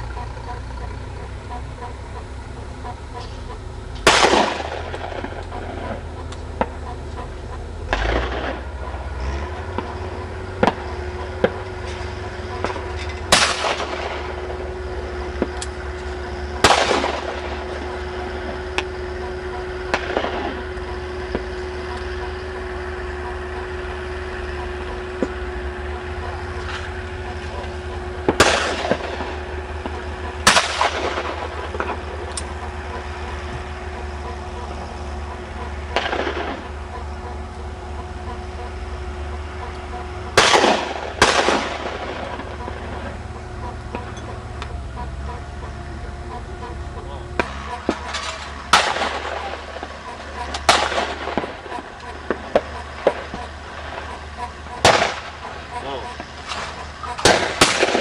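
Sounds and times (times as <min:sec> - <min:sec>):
low rumble and faint hum: 0:00.0 - 0:58.0
shotgun shots: 0:04.0 - 0:06.0, 0:12.6 - 0:15.6, 0:16.4 - 0:21.5, 0:27.5 - 0:32.2, 0:35.9 - 0:36.7, 0:40.4 - 0:43.1, 0:47.4 - 0:54.1, 0:54.8 - 0:55.5, 0:56.2 - 0:58.0.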